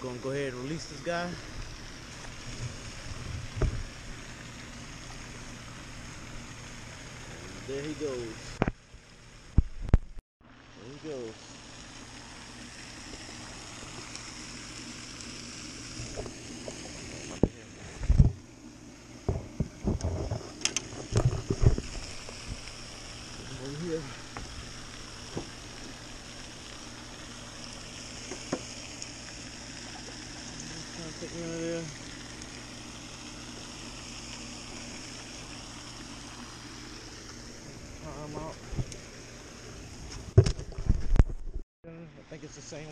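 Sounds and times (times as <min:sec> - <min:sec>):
steady background hiss: 0:00.0 - 0:09.7, 0:20.6 - 0:40.4, 0:41.9 - 0:42.9
constant low hum: 0:00.0 - 0:42.9.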